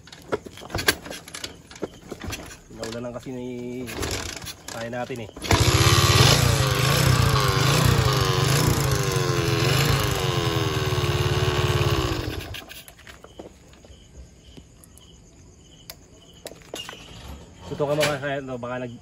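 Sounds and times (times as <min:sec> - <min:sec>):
crickets chirping: 0:00.0 - 0:19.0
small motorcycle engine revving: 0:03.9 - 0:04.8, 0:05.4 - 0:12.9.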